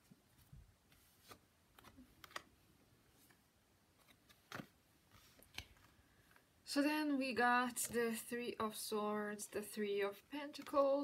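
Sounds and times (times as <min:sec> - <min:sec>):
cards tapped and flicked: 0:04.0 - 0:06.4, 0:10.5 - 0:10.9.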